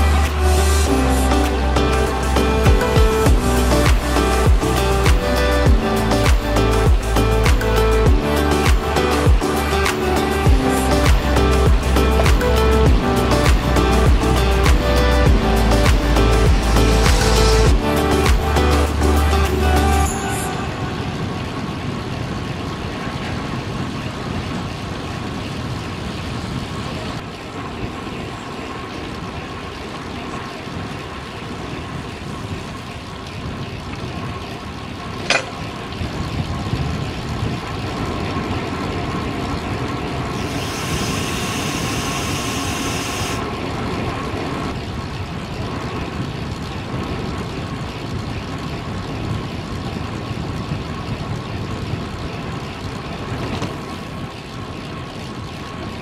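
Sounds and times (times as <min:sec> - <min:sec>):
traffic: 0:00.0 - 0:36.6
wind and bicycle road noise: 0:00.0 - 0:56.0
high hiss: 0:40.4 - 0:43.4.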